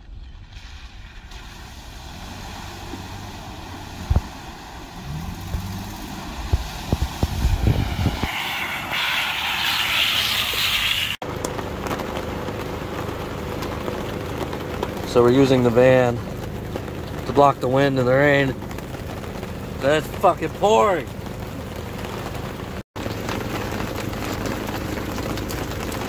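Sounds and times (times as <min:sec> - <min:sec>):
water and mud splashing: 0:00.0 - 0:26.0
truck engine revving: 0:02.1 - 0:11.2
hiss of spray: 0:08.0 - 0:11.2.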